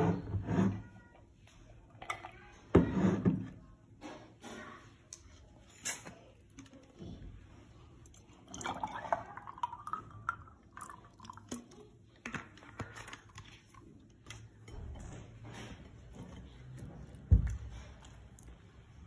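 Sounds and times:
coffee pouring over ice: 0:08.4 - 0:12.0.

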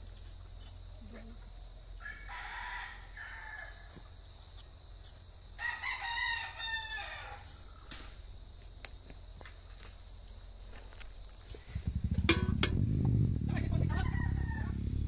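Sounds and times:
rooster crowing: 0:02.0 - 0:04.0, 0:05.6 - 0:08.0, 0:13.8 - 0:14.9.

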